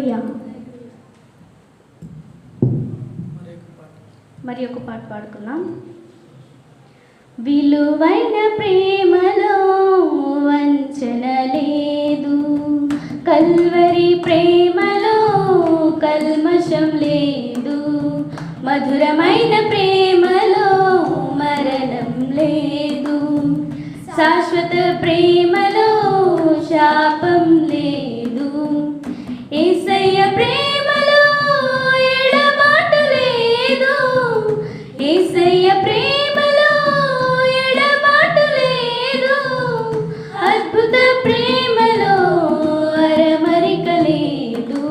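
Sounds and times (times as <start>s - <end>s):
young women singing together: 7.4s - 44.9s.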